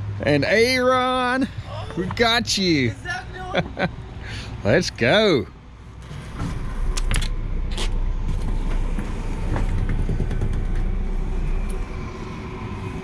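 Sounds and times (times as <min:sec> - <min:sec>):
engine idling: 0:00.2 - 0:13.0.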